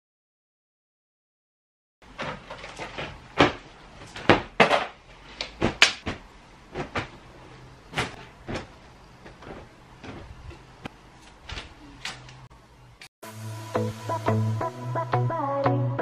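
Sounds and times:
clothes hangers knocking in wardrobe: 0:02.1 - 0:07.3, 0:07.9 - 0:10.7.

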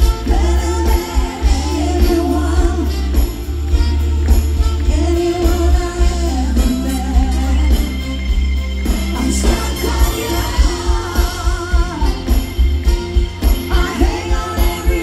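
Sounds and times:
women singing: 0:00.0 - 0:03.5, 0:04.8 - 0:08.0, 0:09.1 - 0:12.6, 0:13.6 - 0:15.0
live pop band: 0:00.0 - 0:15.0.

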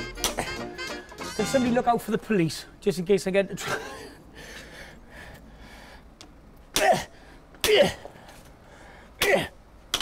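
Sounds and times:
man grunting with effort: 0:06.8 - 0:08.2.

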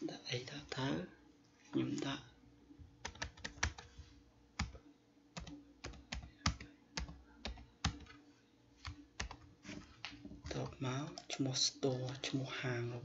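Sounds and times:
keyboard typing: 0:03.0 - 0:03.9, 0:04.6 - 0:04.8, 0:05.4 - 0:08.2, 0:08.8 - 0:09.5.

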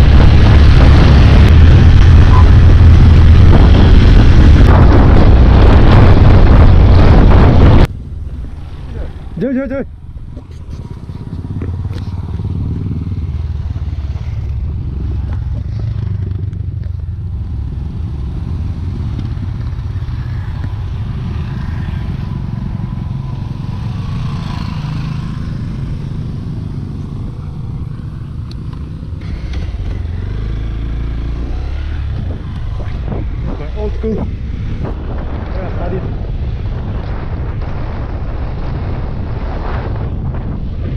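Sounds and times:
trail motorcycles riding past: 0:08.2 - 0:40.9
close motorcycle engine: 0:10.2 - 0:21.4.

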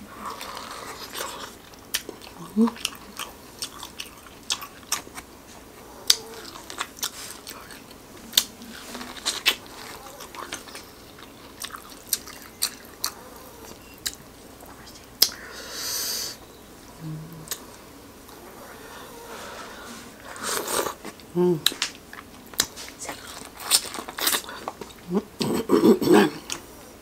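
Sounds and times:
corn on the cob chewing: 0:20.2 - 0:26.7.

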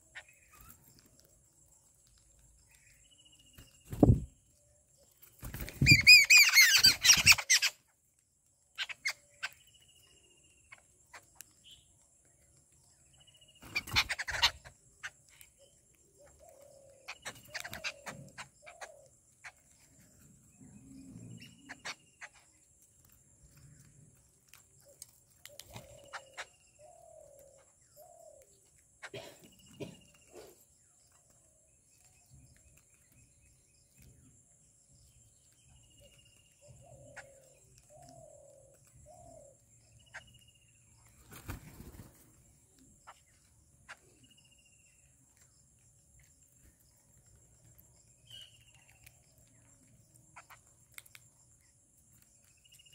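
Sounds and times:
birds chattering: 0:00.0 - 0:08.0, 0:08.6 - 0:34.3, 0:34.9 - 0:52.9
beaks pecking at food: 0:00.1 - 0:52.9
faint bird calls: 0:13.1 - 0:22.7, 0:24.8 - 0:34.3, 0:35.0 - 0:45.5.

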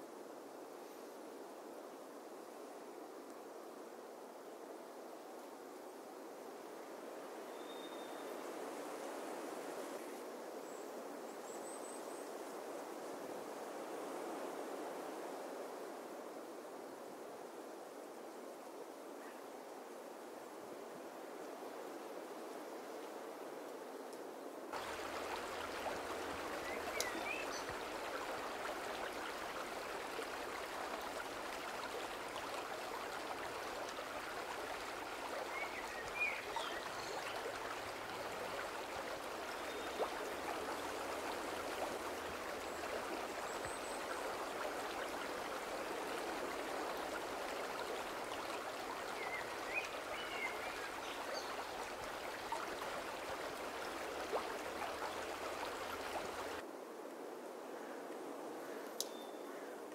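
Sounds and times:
river rushing over rocks: 0:24.7 - 0:56.6.

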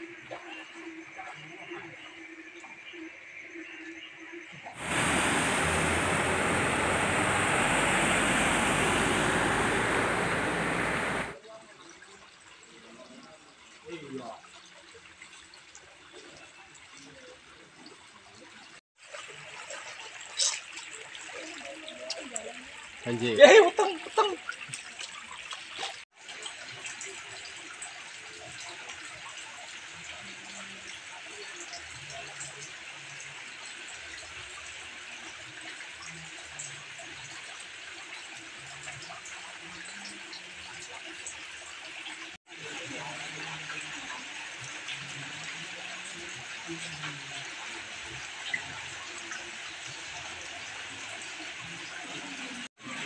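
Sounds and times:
background hiss: 0:04.8 - 0:11.4
water flowing over ledge: 0:04.8 - 0:11.4.

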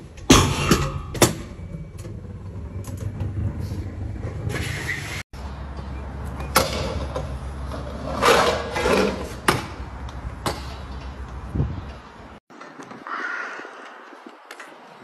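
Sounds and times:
scooter scraping: 0:00.0 - 0:05.2, 0:05.8 - 0:09.8
scooter wheels rolling on bricks: 0:00.0 - 0:13.0.

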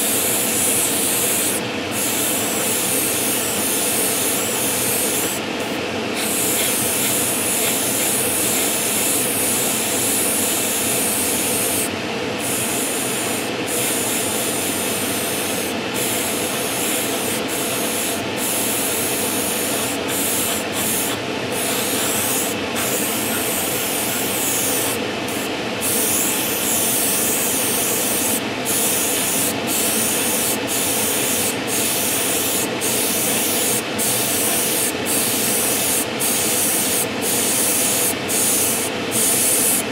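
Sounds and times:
airbrush hissing: 0:00.3 - 0:05.4, 0:06.1 - 0:39.8.

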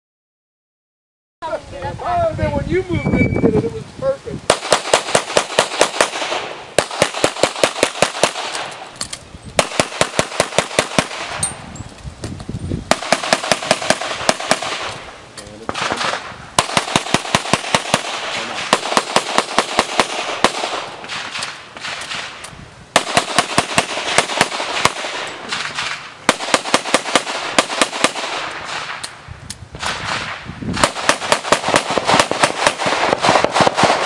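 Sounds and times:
pistol shots in rapid strings: 0:04.5 - 0:08.7, 0:09.6 - 0:11.4, 0:12.9 - 0:14.8, 0:15.7 - 0:22.3, 0:23.0 - 0:28.9, 0:29.8 - 0:34.0.

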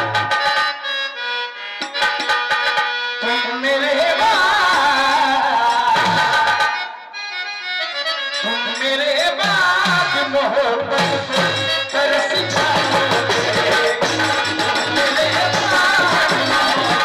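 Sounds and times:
harmonium: 0:00.0 - 0:17.0
tabla: 0:00.0 - 0:17.0
person singing into microphone: 0:03.2 - 0:07.1, 0:08.4 - 0:17.0.

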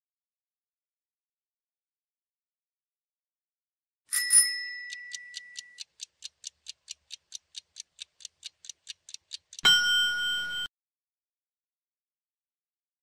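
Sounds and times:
chime: 0:04.1 - 0:05.8, 0:09.6 - 0:10.7
ringing bell: 0:04.1 - 0:05.8, 0:09.6 - 0:10.7
quick clock ticks: 0:04.1 - 0:10.7.

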